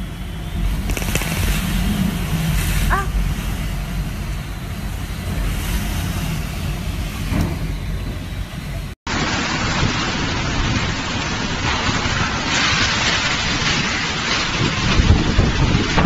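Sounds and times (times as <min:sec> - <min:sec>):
wind buffeting microphone: 0:00.0 - 0:08.9, 0:14.2 - 0:16.0
rain: 0:00.0 - 0:16.0.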